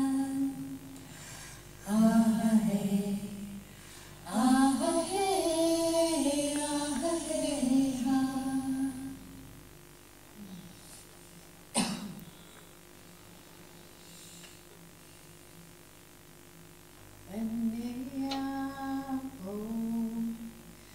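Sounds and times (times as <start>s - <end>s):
woman singing over loudspeakers: 4.3s - 9.2s
person coughing: 11.8s - 12.4s.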